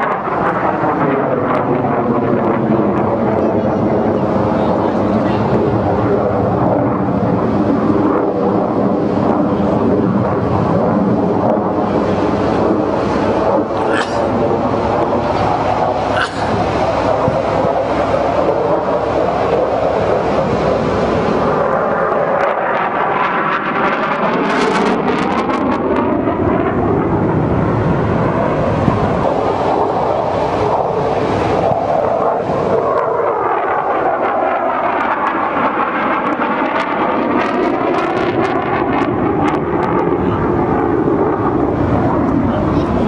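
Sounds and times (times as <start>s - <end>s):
jet aircraft flying overhead: 0.0s - 43.0s.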